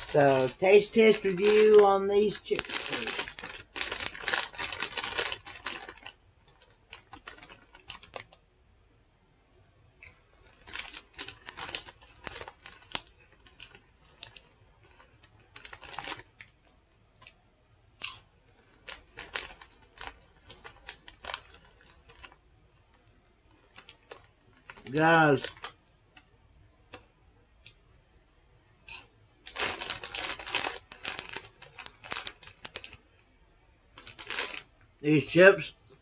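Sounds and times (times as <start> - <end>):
chewing chips crunching: 0.0 - 8.4, 10.0 - 17.4, 18.0 - 22.4, 23.5 - 25.8, 28.8 - 33.0, 34.0 - 34.8
chip bag crinkling: 0.0 - 8.4, 10.0 - 17.4, 18.0 - 26.3, 28.2 - 33.2, 34.0 - 35.7.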